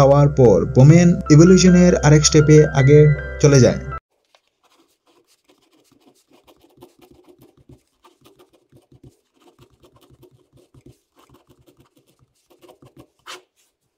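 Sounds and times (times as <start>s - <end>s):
pen scratching on paper: 4.2s - 13.9s.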